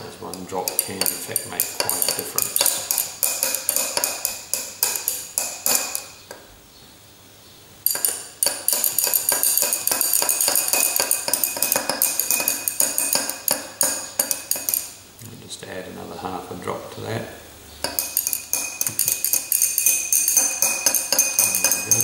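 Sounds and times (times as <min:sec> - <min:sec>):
glass rod clinking in beaker: 0:00.3 - 0:06.3, 0:07.9 - 0:15.0, 0:17.8 - 0:22.0.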